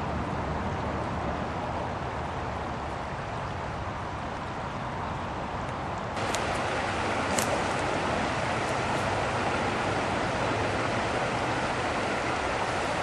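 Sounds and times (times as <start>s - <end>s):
river water rushing over rocks: 6.2s - 13.0s.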